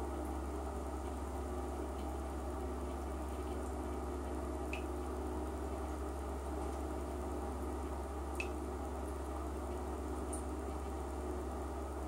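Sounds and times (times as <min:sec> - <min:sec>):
low steady hum: 0:00.0 - 0:12.0
water drip plinks: 0:02.9 - 0:05.0, 0:08.3 - 0:08.6, 0:10.2 - 0:10.5.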